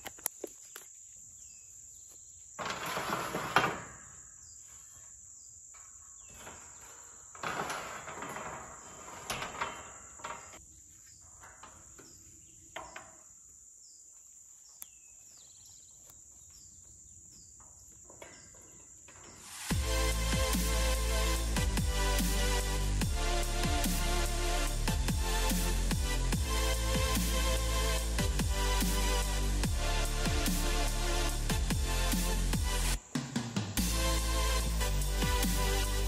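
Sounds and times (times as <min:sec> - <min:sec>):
insects chorus: 0:00.0 - 0:19.8.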